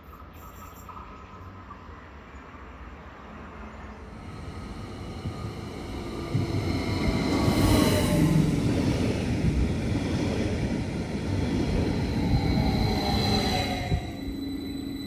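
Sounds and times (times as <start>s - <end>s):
train wheels rumbling on rails: 4.0s - 15.0s.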